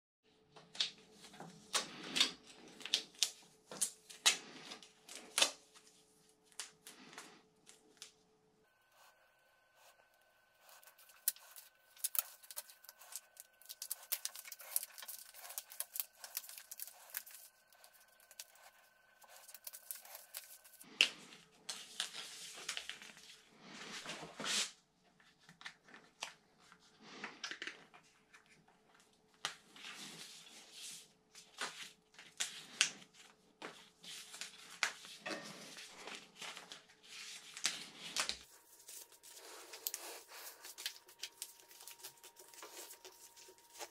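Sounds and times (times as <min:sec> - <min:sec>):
tape crackling and tearing: 0:10.6 - 0:20.9, 0:37.5 - 0:43.9.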